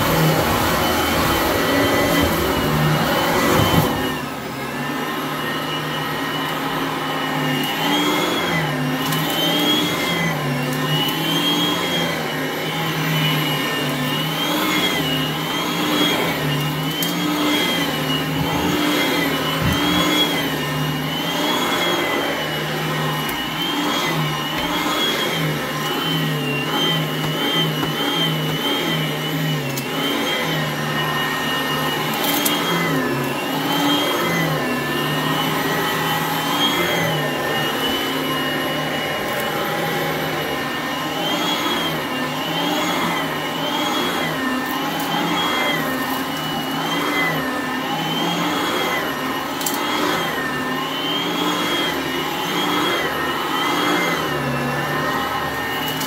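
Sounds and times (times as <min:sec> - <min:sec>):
vacuum cleaner on carpet: 0:00.0 - 0:56.0.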